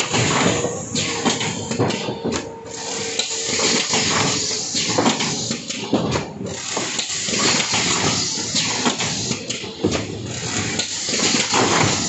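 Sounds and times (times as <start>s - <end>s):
machine parts clacking and knocking: 0.0s - 12.0s
machine hissing: 2.7s - 5.8s, 6.5s - 9.6s, 10.3s - 12.0s.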